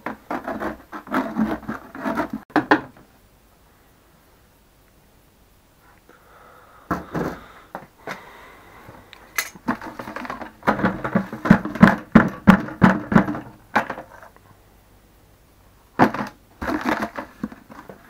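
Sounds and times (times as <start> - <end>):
plastic buckets knocking and scraping: 0.0 - 3.1, 6.9 - 9.0, 9.6 - 14.4, 16.0 - 18.0
bucket being banged: 9.7 - 14.1, 16.0 - 17.6.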